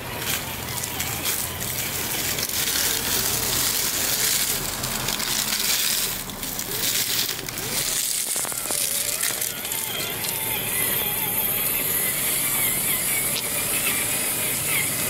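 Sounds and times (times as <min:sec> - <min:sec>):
electric motor and gears whining: 0:00.0 - 0:15.0
tyres crunching through leaves: 0:00.0 - 0:15.0.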